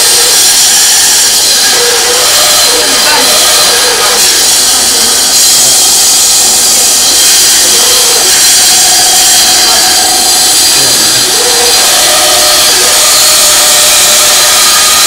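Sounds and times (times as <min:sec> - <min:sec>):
band saw cutting wood: 0:00.0 - 0:15.0.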